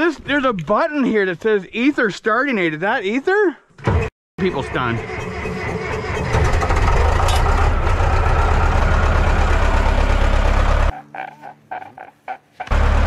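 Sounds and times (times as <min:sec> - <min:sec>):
diesel engine running roughly: 0:04.4 - 0:10.9, 0:12.7 - 0:13.0.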